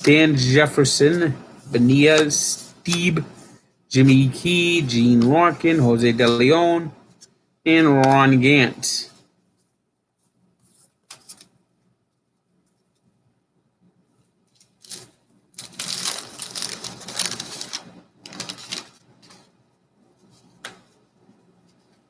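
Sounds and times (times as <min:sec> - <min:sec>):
cards being shuffled: 0:10.7 - 0:11.6, 0:14.5 - 0:19.5
wrapper crinkling: 0:14.5 - 0:19.5.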